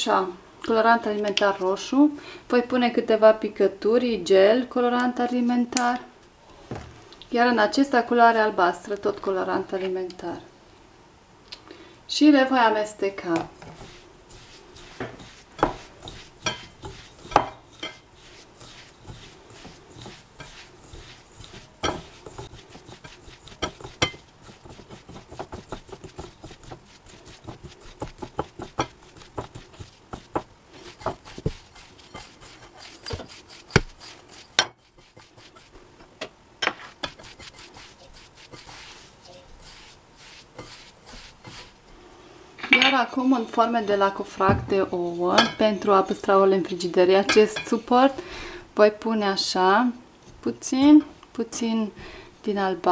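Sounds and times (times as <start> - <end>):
grainy rustle of mixture: 12.5 - 48.2
fingers knocking bowl sides: 19.0 - 35.6.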